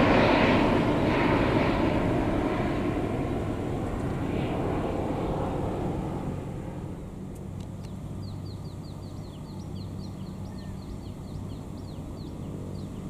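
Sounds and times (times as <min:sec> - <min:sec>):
distant jet aircraft rumble: 0:00.0 - 0:13.0
bird chirping: 0:07.8 - 0:13.0.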